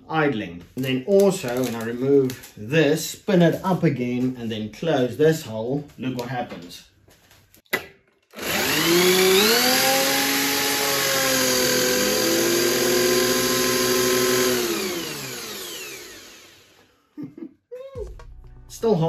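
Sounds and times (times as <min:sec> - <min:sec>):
drill spinning supercharger whine: 0:08.4 - 0:16.8.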